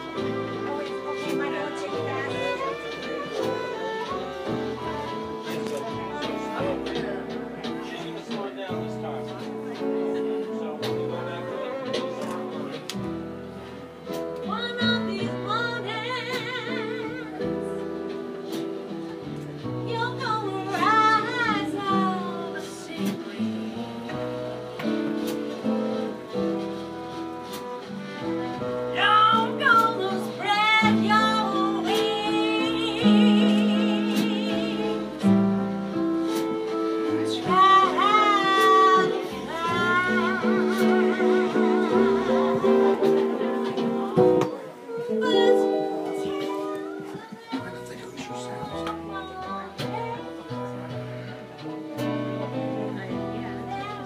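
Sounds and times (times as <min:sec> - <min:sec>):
woman singing: 0:00.0 - 0:07.3, 0:14.4 - 0:18.0, 0:19.8 - 0:24.2, 0:28.9 - 0:35.7, 0:36.5 - 0:51.4, 0:52.5 - 0:54.0
acoustic guitar: 0:00.0 - 0:54.0
fiddle: 0:00.0 - 0:54.0.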